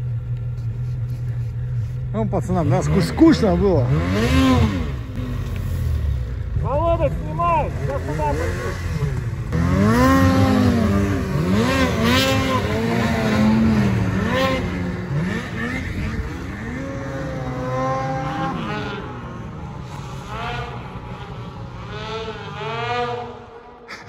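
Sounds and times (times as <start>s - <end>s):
snowmobile engine revving: 1.5s - 24.0s.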